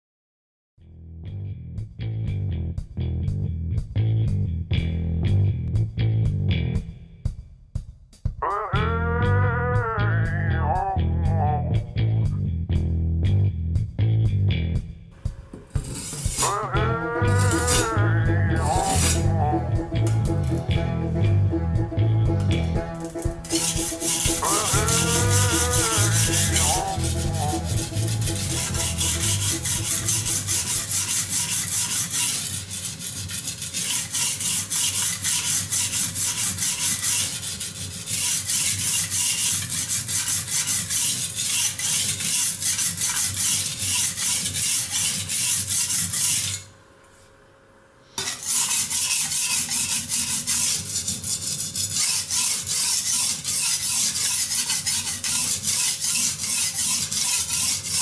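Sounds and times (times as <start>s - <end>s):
blade scraping on whetstone: 15.5s - 19.4s, 22.7s - 46.7s, 48.2s - 58.0s.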